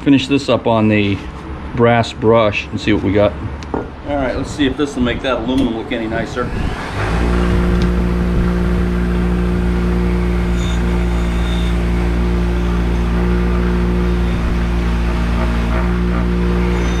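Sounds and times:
bench grinder motor hum: 6.4 - 17.0.

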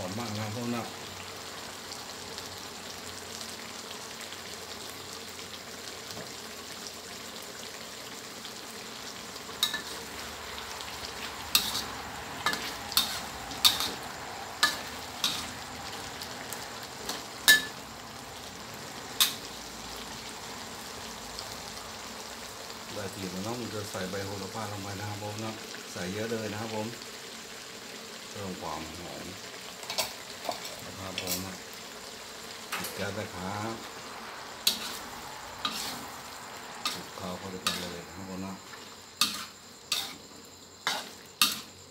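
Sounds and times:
food sizzling in a wok: 0.0 - 41.9
spatula scraping a wok: 9.4 - 17.8, 33.8 - 41.9.

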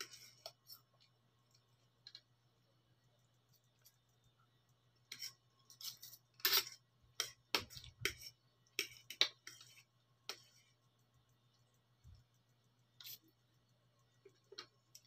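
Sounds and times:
cutlery clinking and scraping a plate: 5.1 - 10.6.

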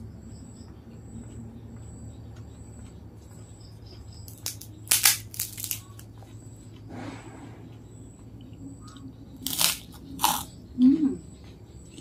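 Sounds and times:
cracker crunching: 4.2 - 6.3, 8.8 - 10.5.

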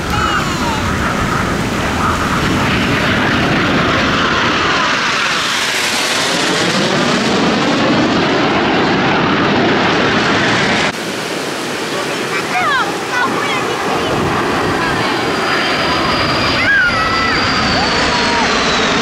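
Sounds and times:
jet aircraft passing low: 0.0 - 19.0.

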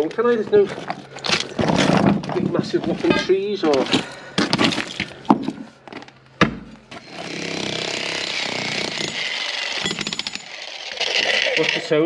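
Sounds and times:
jackhammer hammering concrete: 7.0 - 12.0.

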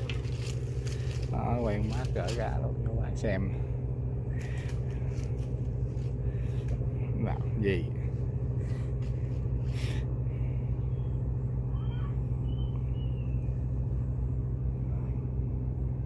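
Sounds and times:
fish flapping on leaves: 0.0 - 2.2
low engine drone: 0.0 - 16.0
faint high chirps: 10.8 - 13.6.

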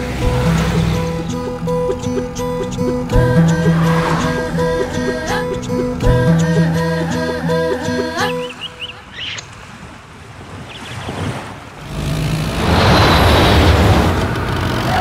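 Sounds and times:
faint road traffic hiss: 0.0 - 6.8
bus engine running: 0.0 - 8.5, 11.9 - 15.0.

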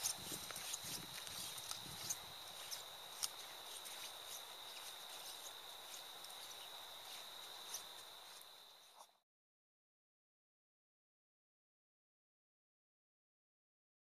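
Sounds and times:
footsteps on sand: 0.0 - 9.2.

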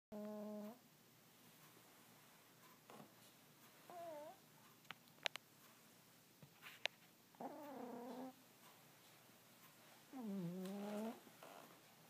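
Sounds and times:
cat snoring: 0.2 - 0.8, 3.9 - 4.4, 7.4 - 8.4, 10.1 - 11.2.

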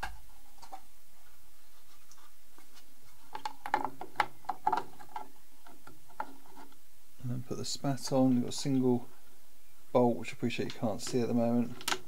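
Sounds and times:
light clicks taps and scrapes: 1.8 - 6.8, 10.6 - 12.0.

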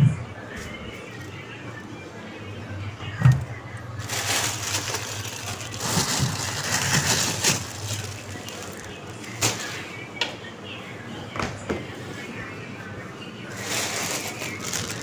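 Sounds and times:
plastic bag crinkling: 3.9 - 9.8, 13.5 - 15.0.

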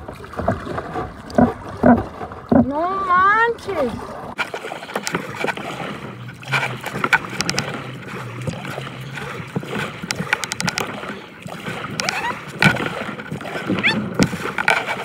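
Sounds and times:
water splashing around kayak: 0.0 - 15.0
knocks and clicks: 1.3 - 2.7, 6.4 - 7.8, 9.6 - 11.0, 11.9 - 15.0.

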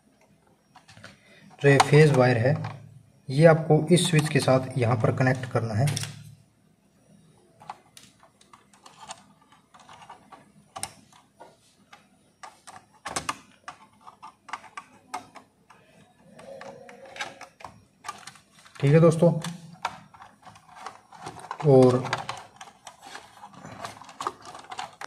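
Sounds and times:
wire handled against plastic: 12.4 - 25.0.

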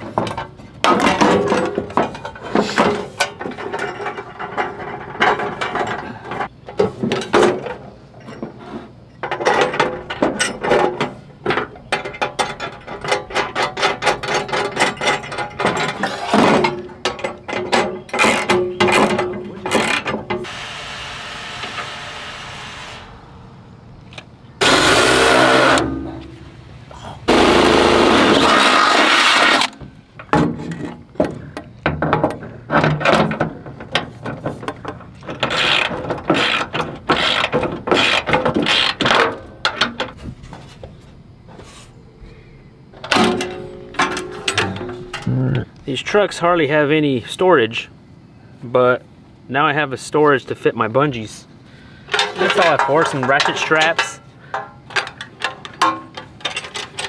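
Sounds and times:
cordless power drill bursts: 20.4 - 23.1, 24.6 - 25.8.

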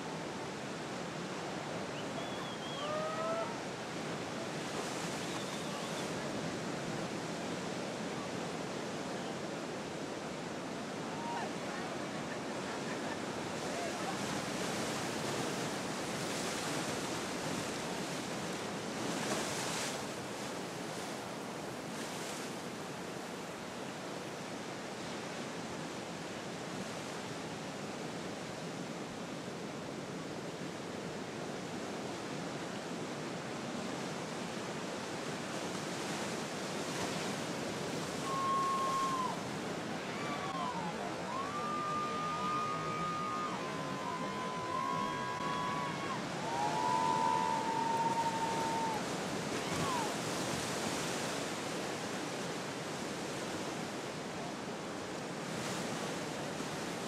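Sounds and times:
ocean surf washing: 0.0 - 57.0
high whistle-like tones: 2.0 - 3.0, 38.2 - 39.4.

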